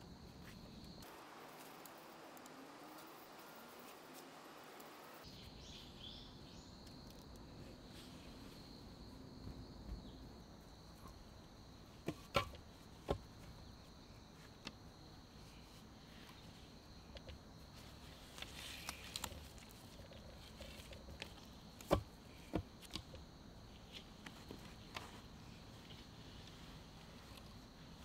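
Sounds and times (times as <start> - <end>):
wooden logs knocking together: 12.0 - 13.3.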